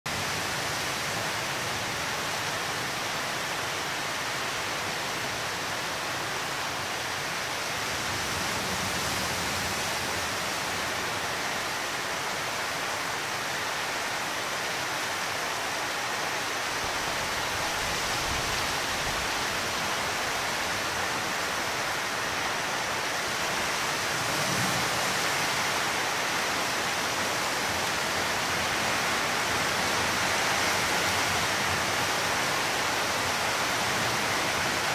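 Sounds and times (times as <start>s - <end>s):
heavy rain hiss: 0.1s - 34.9s.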